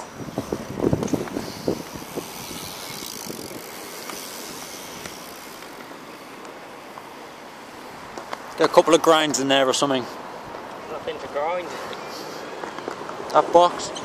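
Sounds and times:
steady rushing noise: 0.0 - 14.0
inline skates clacking on concrete: 0.9 - 7.1, 11.9 - 14.0.

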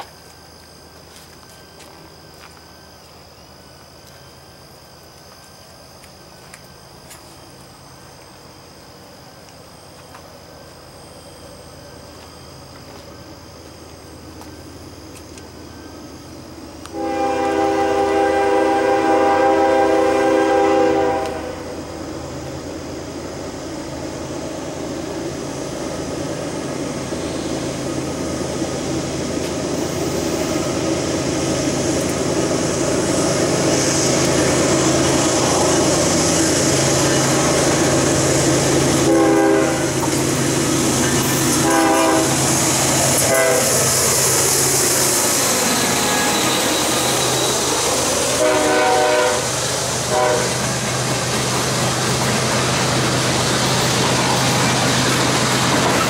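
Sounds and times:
train engine and wheel noise: 0.0 - 56.0
train horn: 16.9 - 21.8, 39.0 - 40.1, 41.5 - 42.4, 43.2 - 43.8, 48.3 - 50.6.

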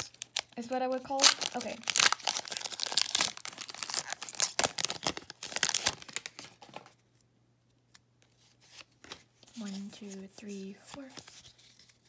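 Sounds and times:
foil wrapper tearing and crinkling: 0.0 - 6.9.

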